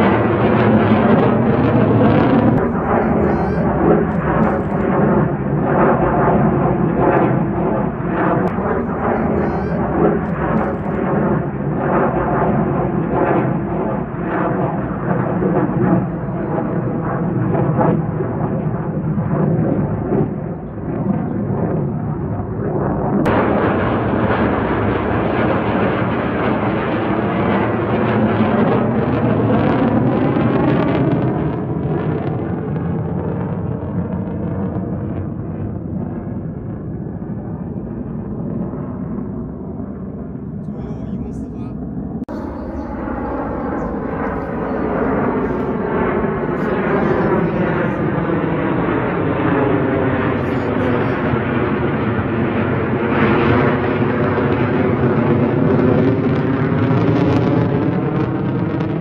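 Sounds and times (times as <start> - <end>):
jet passing with phasing sweep: 0.0 - 20.3, 35.5 - 54.7
jet engines roaring overhead: 0.0 - 59.0.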